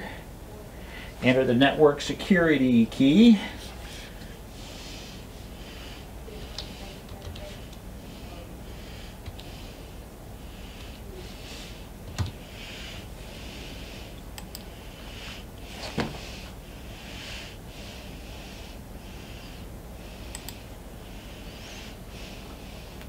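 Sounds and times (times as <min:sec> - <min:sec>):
man breathing: 0:00.0 - 0:01.2, 0:03.2 - 0:23.0
keyboard typing: 0:06.5 - 0:07.8.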